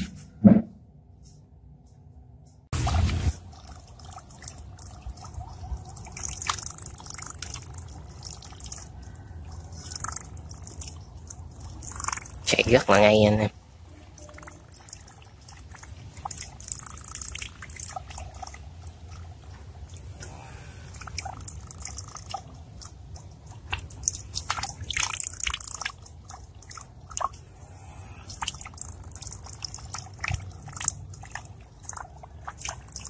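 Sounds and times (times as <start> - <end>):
steady hiss: 2.8 - 3.4
water splashing and trickling: 2.8 - 33.0
water dripping: 2.9 - 13.0, 13.8 - 27.6, 28.3 - 33.0.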